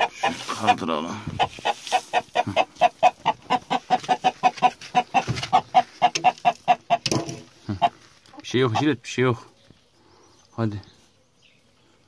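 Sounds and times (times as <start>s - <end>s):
chicken alarm clucking: 0.0s - 9.0s.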